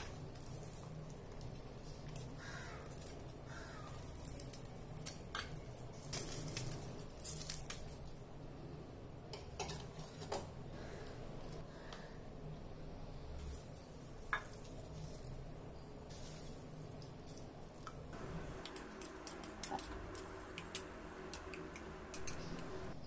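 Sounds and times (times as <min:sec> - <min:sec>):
light crackles of brittle strands: 0:00.0 - 0:08.4, 0:13.4 - 0:21.5.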